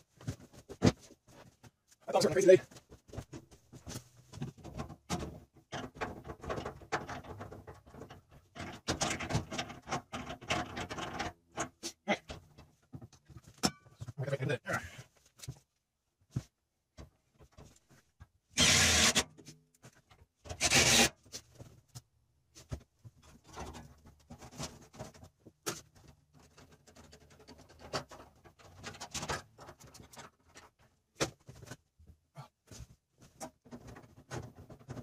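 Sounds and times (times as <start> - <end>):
knocks and clicks of handled parts: 2.7 - 14.2
cordless drill driving screws: 18.6 - 19.2, 20.6 - 21.1.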